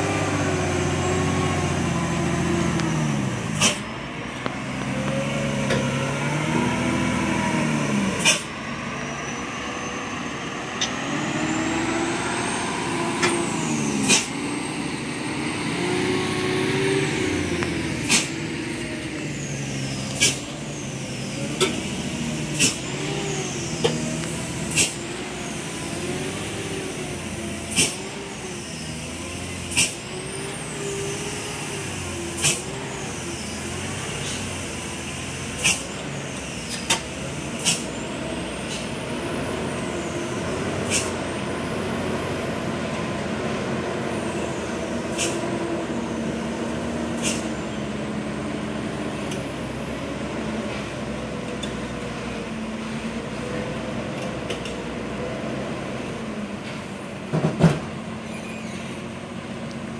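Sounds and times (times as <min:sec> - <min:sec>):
diesel truck engine: 0:00.0 - 0:59.9
air brake hisses: 0:03.6 - 0:03.9, 0:08.2 - 0:08.6, 0:13.2 - 0:14.5, 0:18.0 - 0:18.4, 0:19.3 - 0:21.2, 0:22.4 - 0:24.0, 0:24.6 - 0:25.7, 0:27.6 - 0:30.1, 0:32.0 - 0:38.0, 0:40.8 - 0:41.3, 0:45.0 - 0:45.5, 0:47.1 - 0:47.6.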